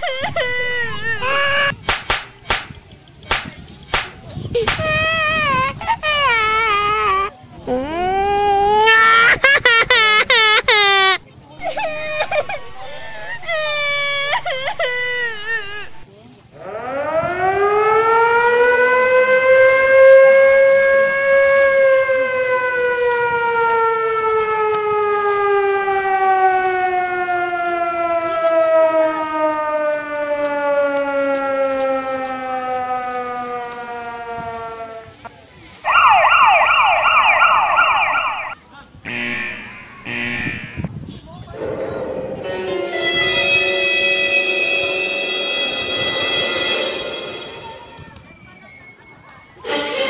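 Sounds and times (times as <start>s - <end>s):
outdoor warning siren wailing: 0.0s - 1.8s, 11.0s - 35.2s, 35.8s - 40.9s, 41.6s - 48.1s.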